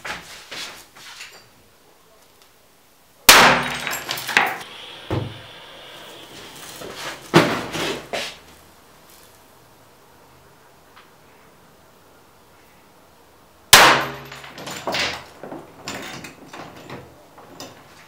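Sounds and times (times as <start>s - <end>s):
small cannon firing bangs: 3.3s - 5.4s, 13.7s - 14.5s.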